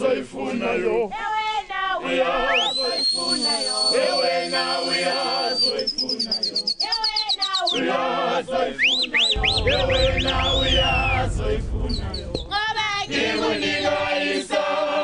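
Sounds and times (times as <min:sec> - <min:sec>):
choir singing in harmony: 0:00.0 - 0:15.0
high bird-like whistles: 0:02.5 - 0:07.9, 0:08.7 - 0:14.6
low rumble: 0:09.3 - 0:14.4.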